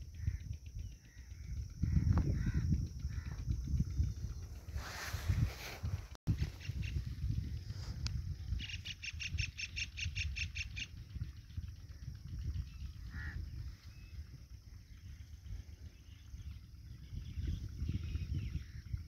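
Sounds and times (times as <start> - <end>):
bird calling: 0.0 - 19.0
low steady rumble: 0.0 - 19.0.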